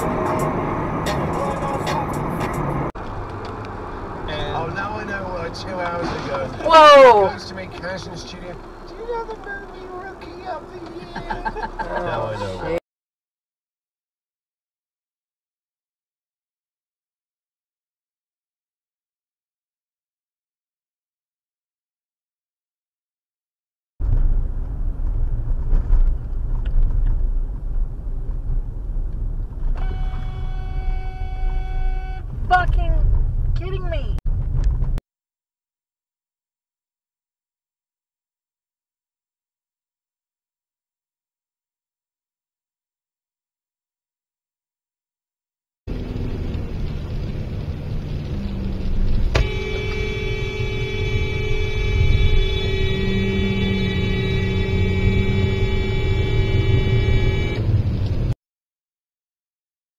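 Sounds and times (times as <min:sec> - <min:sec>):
car road rumble: 0:00.0 - 0:12.8, 0:24.0 - 0:35.0, 0:45.9 - 0:58.4
car horn held note: 0:29.8 - 0:32.2, 0:49.4 - 0:57.6.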